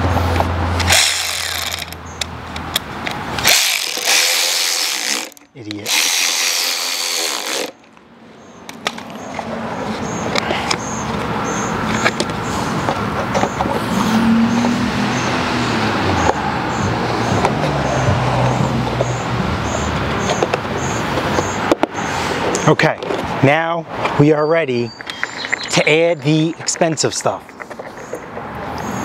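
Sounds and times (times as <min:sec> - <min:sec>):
engine running: 0:00.0 - 0:07.8.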